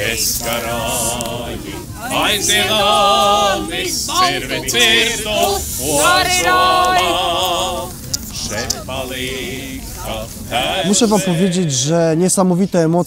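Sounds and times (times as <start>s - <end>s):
person singing unaccompanied: 0.0s - 11.8s.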